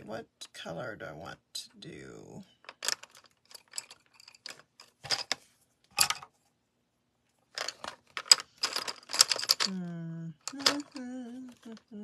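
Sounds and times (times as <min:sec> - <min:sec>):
wooden pencils knocking and clicking: 0:02.6 - 0:06.4, 0:07.5 - 0:09.8, 0:10.4 - 0:11.8.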